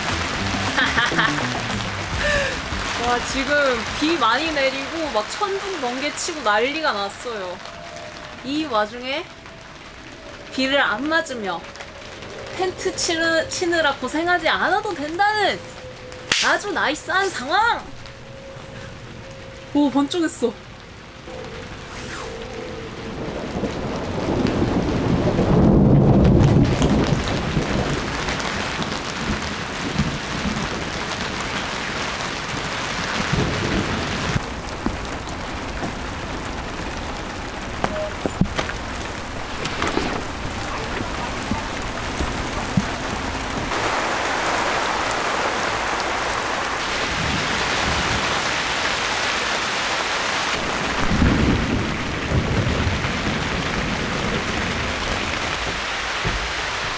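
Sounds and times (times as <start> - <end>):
loud thunderclap: 0.0 - 5.4, 22.9 - 56.9
heavy rain falling: 0.0 - 56.9.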